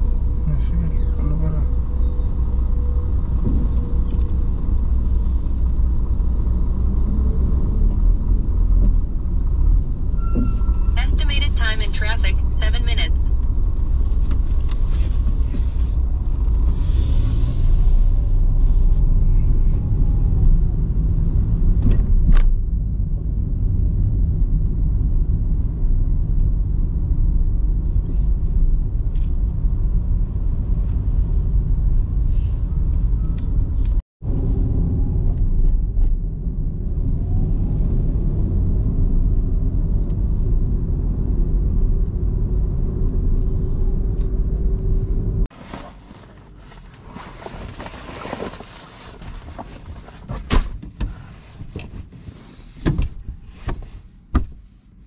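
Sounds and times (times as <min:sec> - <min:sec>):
car interior road rumble: 0:00.0 - 0:55.0.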